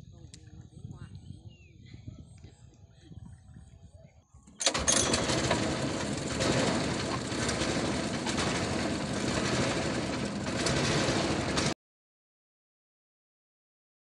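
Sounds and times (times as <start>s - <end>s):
small boat engine running: 4.6s - 11.8s.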